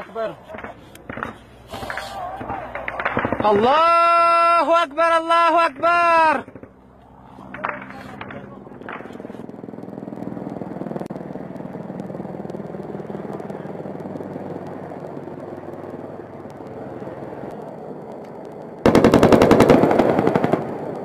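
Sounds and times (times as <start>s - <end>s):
helicopter rotor and engine: 6.0s - 21.0s
rapid automatic gunfire: 18.8s - 21.0s.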